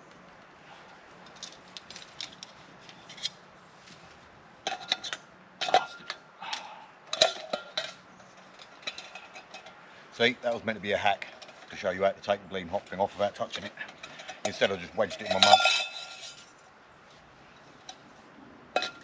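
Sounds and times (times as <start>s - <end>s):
metal pots clinking and scraping: 4.6s - 12.0s, 12.7s - 16.5s, 18.7s - 19.0s.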